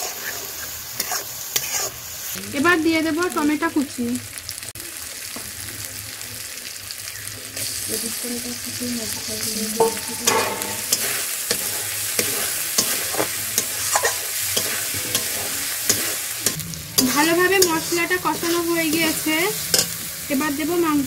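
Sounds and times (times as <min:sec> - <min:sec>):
metal spatula scraping a pan: 0:00.0 - 0:02.0, 0:09.1 - 0:20.2
paste sizzling in a pan: 0:00.0 - 0:21.0.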